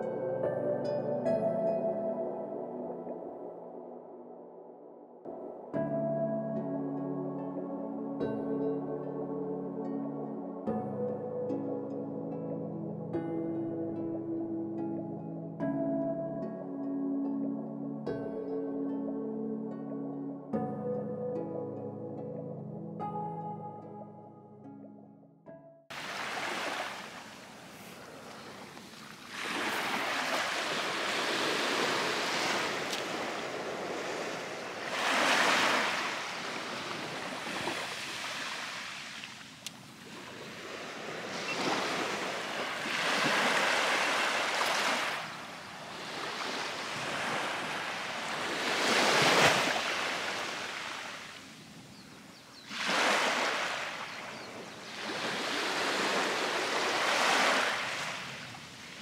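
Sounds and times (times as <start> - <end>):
waves breaking on a beach: 25.9 - 59.0.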